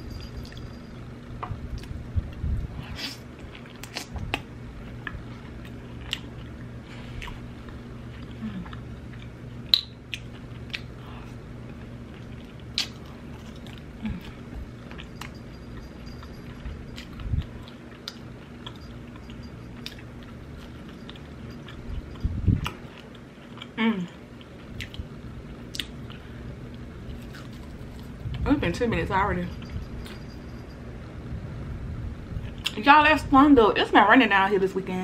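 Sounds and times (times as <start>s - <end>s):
chewing and biting meat: 5.0s - 23.8s.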